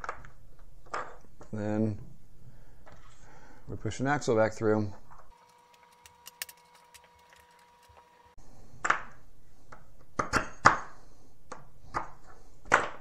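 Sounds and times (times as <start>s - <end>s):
plastic pieces clicking and tapping: 5.4s - 8.1s.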